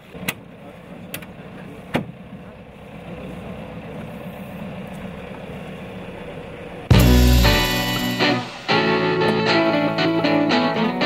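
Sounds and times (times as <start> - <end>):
boat engine idling: 1.7 - 6.8.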